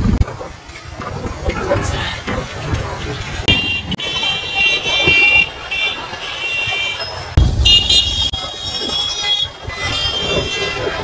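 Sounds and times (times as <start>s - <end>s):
traffic noise: 0.0s - 11.0s
motorbike horns honking: 3.4s - 11.0s
sudden low rumble: 7.4s - 8.4s.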